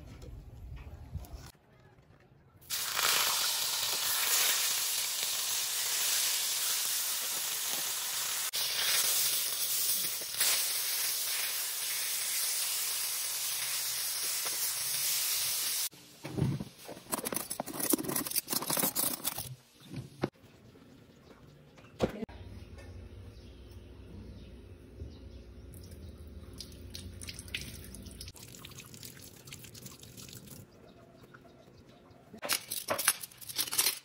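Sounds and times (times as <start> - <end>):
fish frying in oil: 2.7 - 15.9
cutlery clinking in drawer: 17.0 - 19.6.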